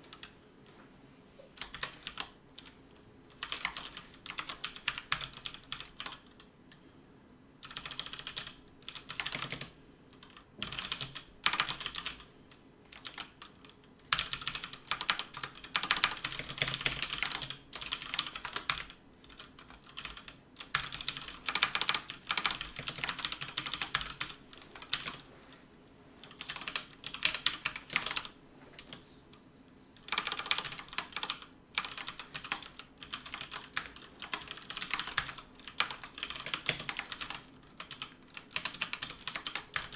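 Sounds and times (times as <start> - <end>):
typing on keyboard: 1.6 - 6.8, 7.6 - 12.3, 12.9 - 25.2, 26.2 - 29.0, 30.0 - 39.9.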